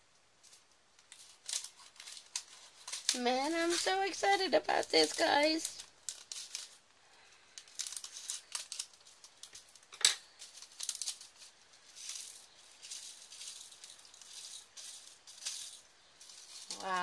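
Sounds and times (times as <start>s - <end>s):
plastic bag crinkling: 0.3s - 17.0s
scissors snipping plastic bag: 1.0s - 6.8s
rhinestones rattling: 7.6s - 17.0s.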